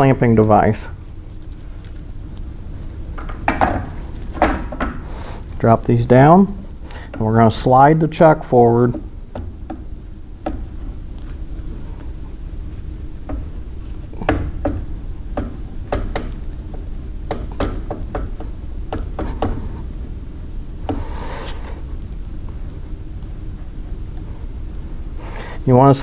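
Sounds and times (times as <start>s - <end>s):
steady low hum: 0.0s - 26.0s
metal clicks and knocks: 3.2s - 5.0s, 13.2s - 19.8s.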